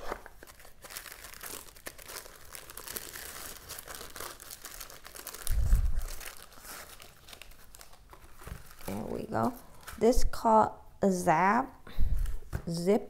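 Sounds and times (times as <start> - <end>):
tissue paper rustling and crinkling: 0.0 - 10.0.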